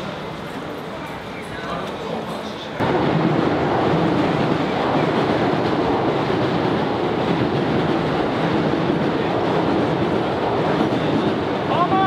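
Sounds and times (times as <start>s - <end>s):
crowd hubbub: 0.0s - 3.0s
traffic rumble: 0.0s - 12.0s.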